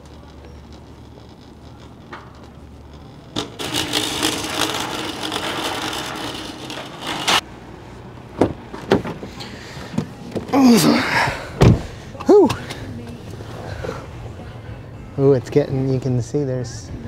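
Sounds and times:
shopping cart rattling on pavement: 0:00.0 - 0:07.4.

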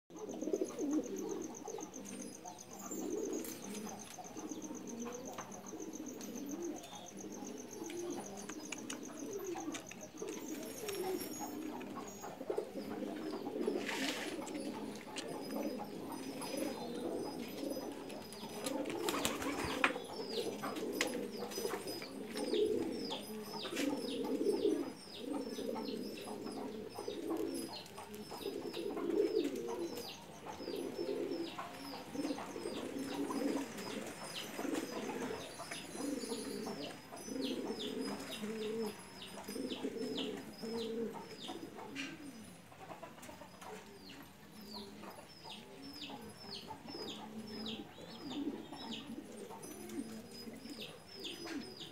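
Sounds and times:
pigeons cooing: 0:00.1 - 0:51.9
small birds chirping: 0:00.1 - 0:51.9.

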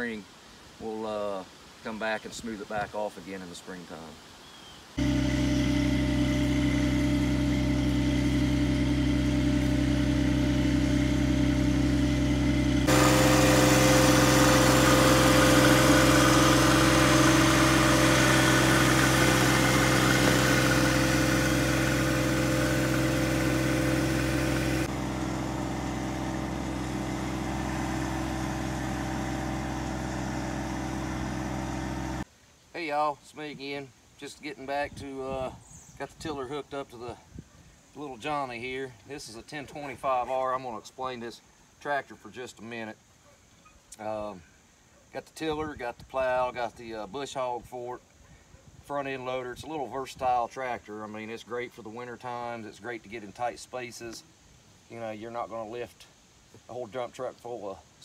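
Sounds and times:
tractor diesel engine running: 0:05.0 - 0:32.2.

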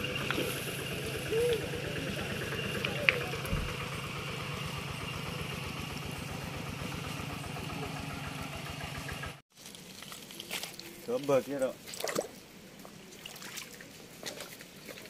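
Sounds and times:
small engine idling: 0:00.0 - 0:09.4.

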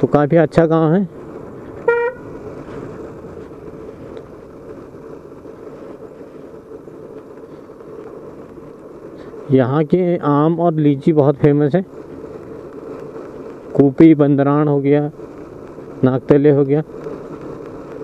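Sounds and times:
motorcycle engine and road noise: 0:00.0 - 0:18.0
motorcycle horn toot: 0:01.8 - 0:02.3.

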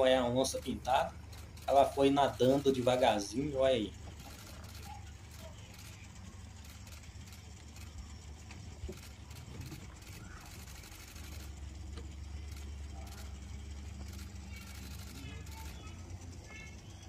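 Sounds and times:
faint chirping calls: 0:00.0 - 0:17.0
low engine rumble: 0:00.0 - 0:17.0.

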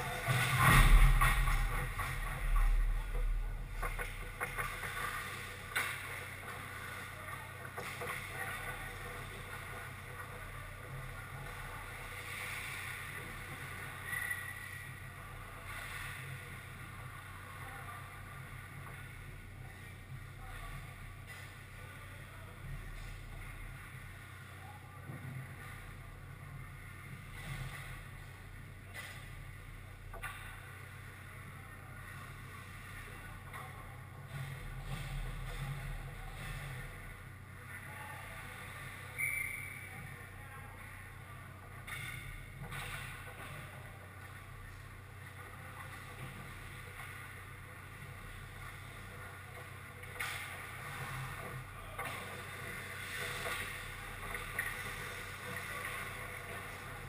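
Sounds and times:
steady low hum: 0:00.0 - 0:57.0
hockey sticks and skates clacking on ice: 0:00.1 - 0:03.2, 0:03.8 - 0:14.8, 0:41.7 - 0:57.0.

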